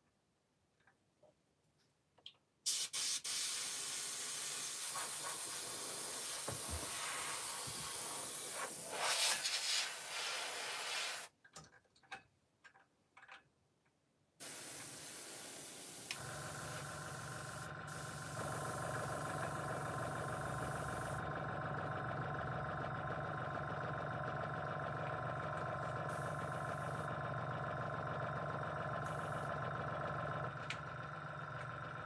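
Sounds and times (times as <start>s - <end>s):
compressed air hissing from airbrush: 2.7s - 11.3s, 14.4s - 21.2s, 26.1s - 27.1s, 29.0s - 29.5s.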